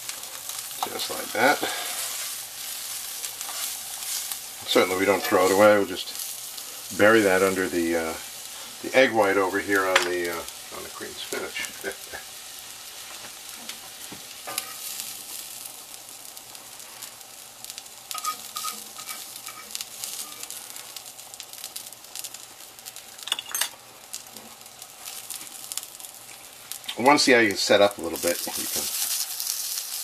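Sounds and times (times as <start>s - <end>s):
egg sizzling in a pan: 0.0s - 30.0s
fork clicking and scraping pan: 18.1s - 20.4s.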